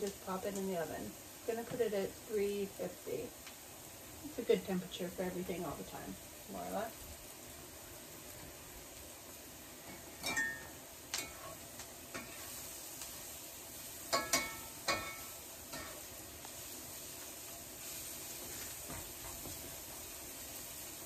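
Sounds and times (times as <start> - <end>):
onions sizzling in a skillet: 0.0 - 21.0
metal spatula scraping a pan: 9.9 - 12.7, 14.0 - 16.2.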